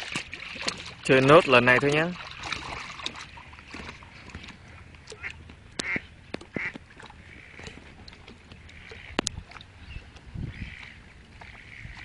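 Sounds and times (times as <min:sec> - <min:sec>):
ducks quacking: 0:05.1 - 0:07.8, 0:09.9 - 0:12.0.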